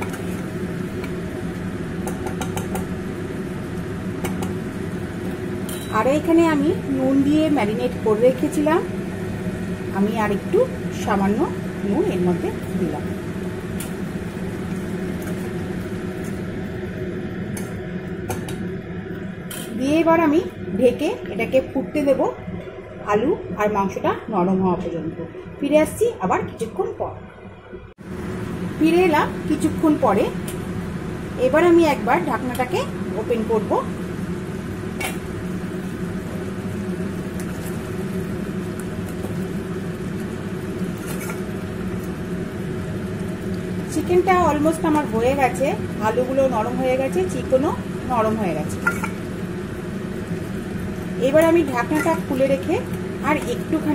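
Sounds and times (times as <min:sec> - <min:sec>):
pot lid click: 0:48.8 - 0:49.2.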